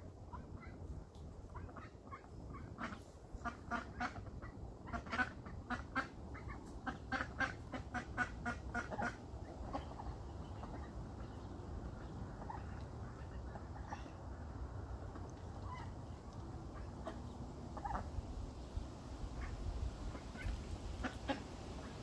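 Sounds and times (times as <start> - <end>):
ducks quacking: 1.5 - 14.2, 15.0 - 18.2, 19.3 - 22.0.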